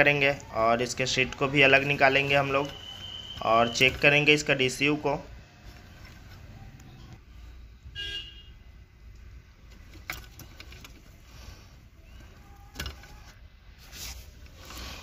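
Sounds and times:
plastic connectors handled: 0:00.0 - 0:04.8, 0:09.1 - 0:15.0.

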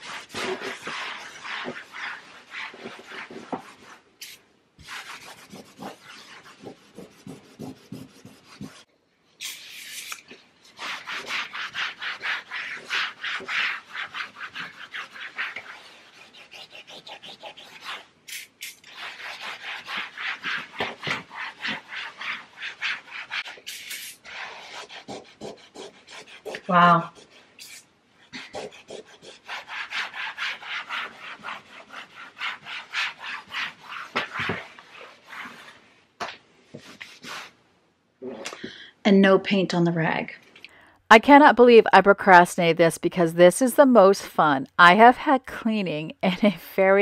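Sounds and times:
cloth scrubbing a wall: 0:00.0 - 0:08.9, 0:10.7 - 0:18.1, 0:18.8 - 0:27.6, 0:28.4 - 0:35.9
short hiss: 0:09.4 - 0:10.2, 0:23.7 - 0:24.2.

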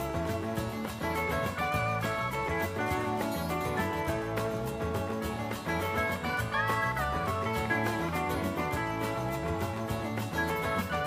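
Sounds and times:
country-style acoustic guitar music: 0:00.0 - 0:11.0.

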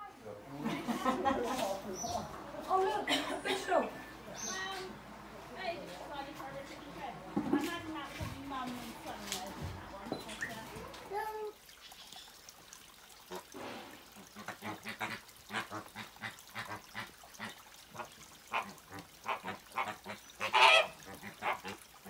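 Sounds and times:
flamingos calling: 0:14.4 - 0:21.8.

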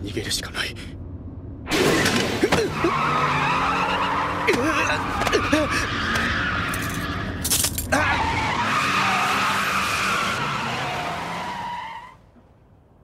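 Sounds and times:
car tyres screeching: 0:01.7 - 0:12.2.

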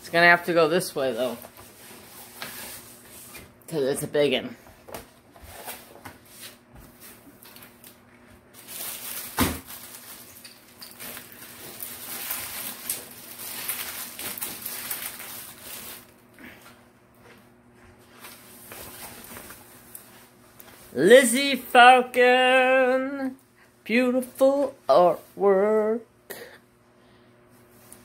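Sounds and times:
plastic film crinkling: 0:07.4 - 0:16.2.

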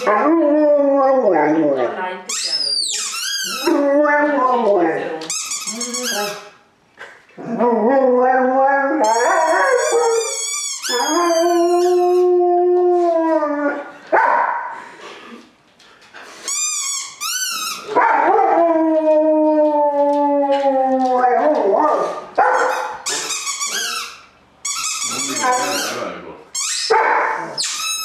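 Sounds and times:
dog howling: 0:18.0 - 0:22.1.

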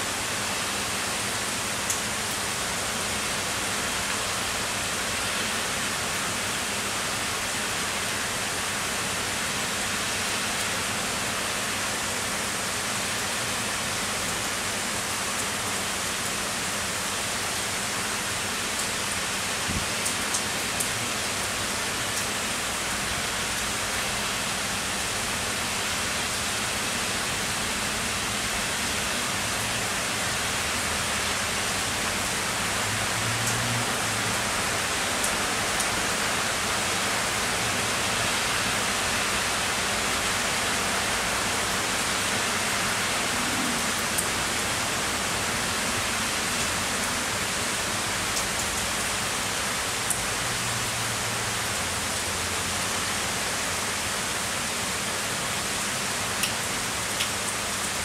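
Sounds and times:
heavy rain hissing: 0:15.6 - 0:58.0.

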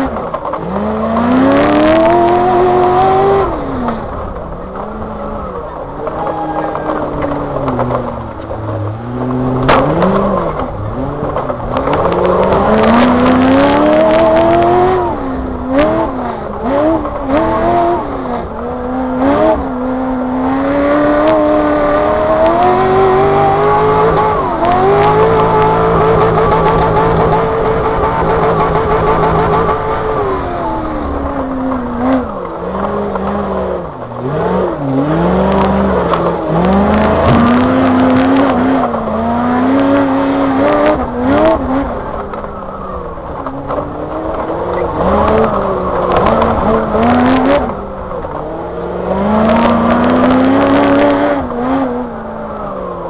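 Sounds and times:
buggy engine revving: 0:00.0 - 0:53.0
sharp knocks from chassis: 0:09.2 - 0:13.2.

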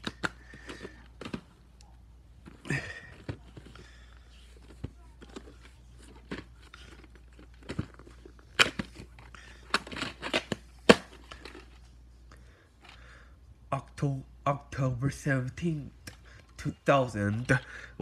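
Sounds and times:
plastic case clicks and crackles: 0:00.0 - 0:01.5, 0:02.4 - 0:11.8.

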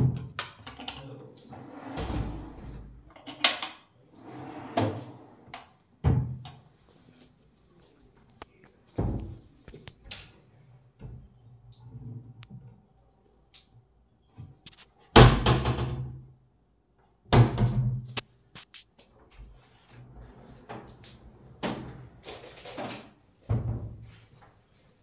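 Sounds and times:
sliding doors banging: 0:01.6 - 0:03.0, 0:04.2 - 0:05.5.

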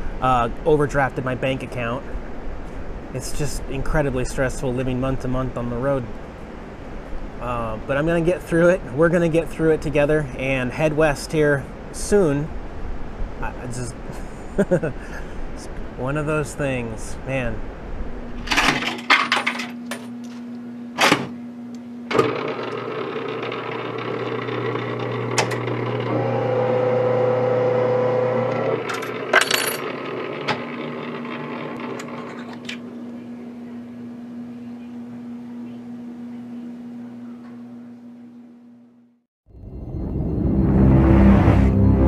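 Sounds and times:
electric motor and gears running: 0:22.1 - 0:33.0
coins clinking: 0:28.9 - 0:29.9
high-pitched whine: 0:39.5 - 0:42.0.

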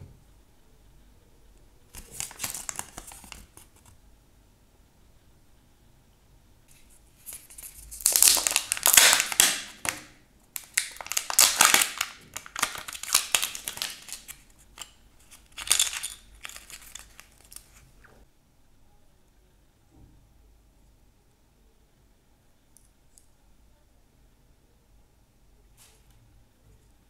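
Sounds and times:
paper and plastic crinkling: 0:01.9 - 0:03.9, 0:06.7 - 0:17.9.

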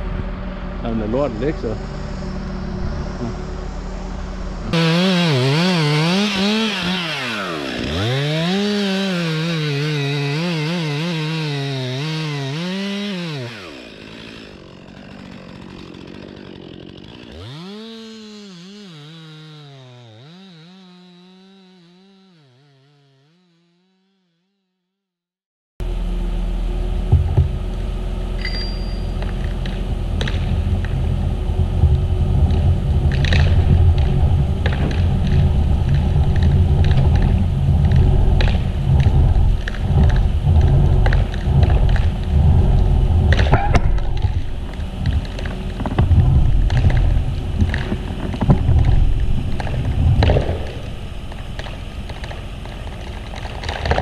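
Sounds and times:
low outdoor rumble: 0:00.0 - 0:06.0, 0:25.8 - 0:54.0
chainsaw revving: 0:04.7 - 0:24.4, 0:27.3 - 0:54.0
chainsaw cutting wood: 0:04.7 - 0:24.6, 0:25.8 - 0:54.0.

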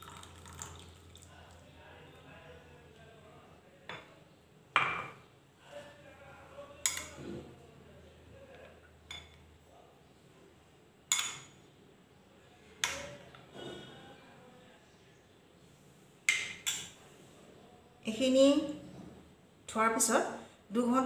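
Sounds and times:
metal spoon clinking on steel bowl: 0:06.8 - 0:07.2, 0:11.1 - 0:11.6.

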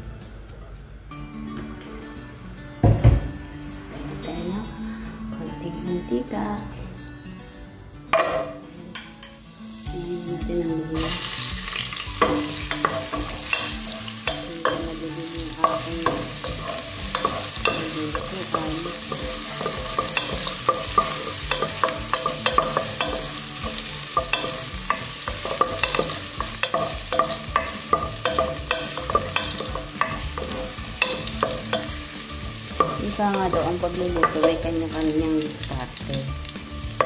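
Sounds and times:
ginger sizzling in hot oil: 0:11.0 - 0:37.0.

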